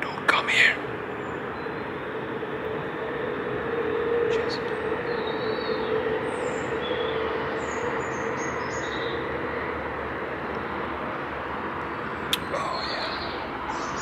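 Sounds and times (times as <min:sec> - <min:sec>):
distant traffic rumble: 0:00.0 - 0:14.0.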